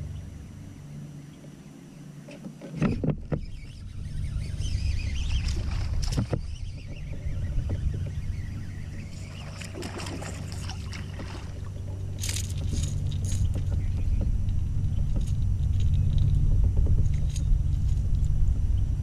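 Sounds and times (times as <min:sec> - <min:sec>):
low rumble: 0:03.4 - 0:19.0
metallic clicks and jangling: 0:12.2 - 0:16.4, 0:17.0 - 0:18.3.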